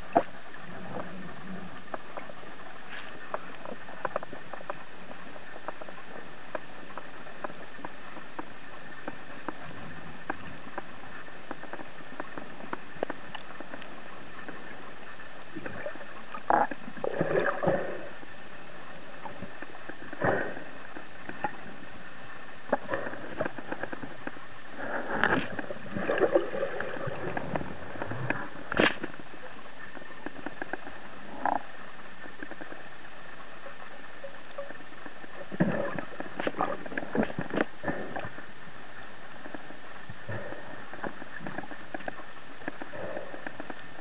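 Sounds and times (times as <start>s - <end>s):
faint clicks: 0.0s - 44.0s
knocks and scrapes: 22.7s - 31.6s.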